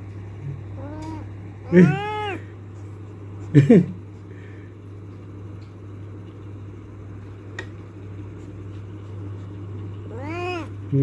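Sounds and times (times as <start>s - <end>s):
steady low hum: 0.0s - 11.0s
cat meowing: 0.8s - 2.4s, 10.1s - 10.8s.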